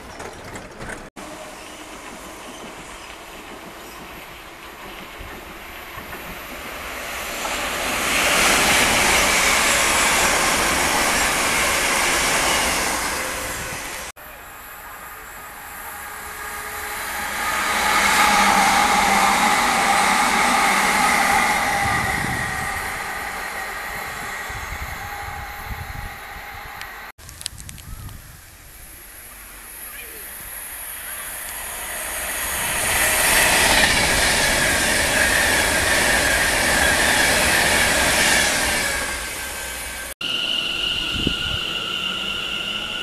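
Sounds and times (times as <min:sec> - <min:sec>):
electric train passing: 0:00.0 - 0:27.1, 0:28.8 - 0:43.0
train motor whine: 0:07.4 - 0:27.1, 0:30.7 - 0:43.0.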